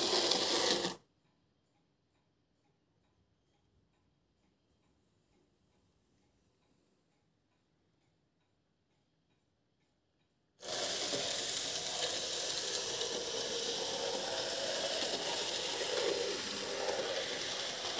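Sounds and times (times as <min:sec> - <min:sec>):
steady whirring hiss: 0:10.6 - 0:17.9.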